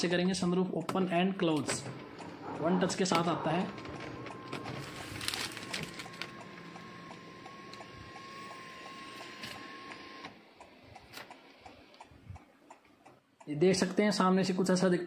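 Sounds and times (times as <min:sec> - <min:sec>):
sunroof motor whining: 0:01.9 - 0:10.8.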